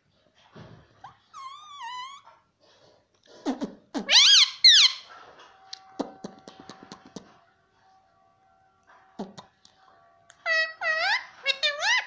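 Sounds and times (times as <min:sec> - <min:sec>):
parakeet squawking: 0:01.0 - 0:02.3, 0:03.4 - 0:05.1, 0:10.3 - 0:12.0.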